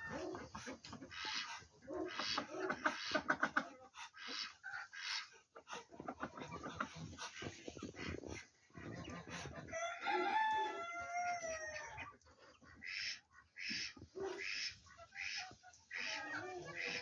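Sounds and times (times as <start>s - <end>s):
rooster crowing: 9.8s - 12.0s.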